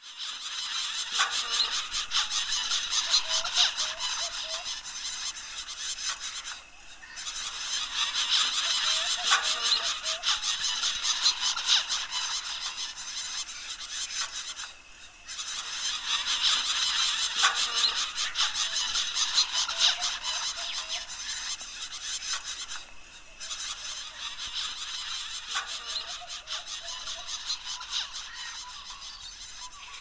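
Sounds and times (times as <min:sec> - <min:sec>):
finches calling: 0:00.0 - 0:30.0.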